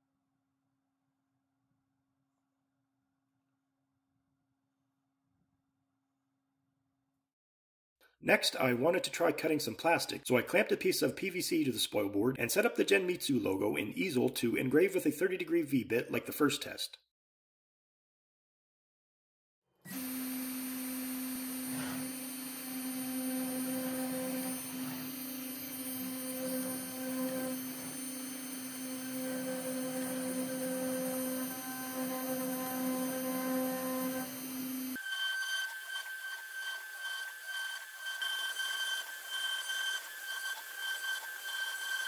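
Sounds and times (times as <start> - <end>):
router spindle whine: 19.9 - 42.0.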